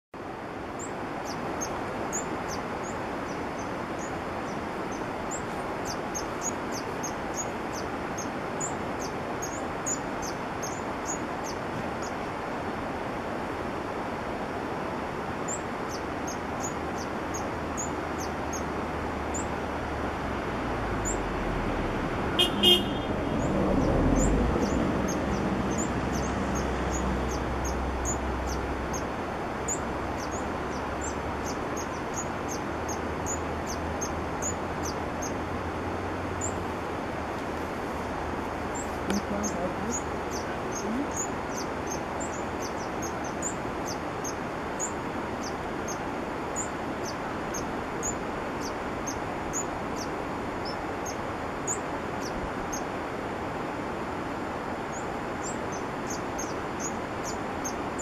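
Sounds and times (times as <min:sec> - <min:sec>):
background hiss: 0:00.2 - 0:58.0
passing vehicle rumble: 0:17.5 - 0:42.6
horn toots: 0:22.4 - 0:23.4.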